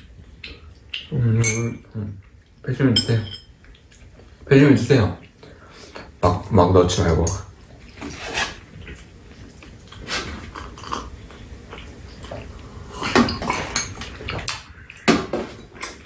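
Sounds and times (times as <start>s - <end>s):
chewing: 0.0s - 1.3s, 3.5s - 4.5s, 7.6s - 16.0s.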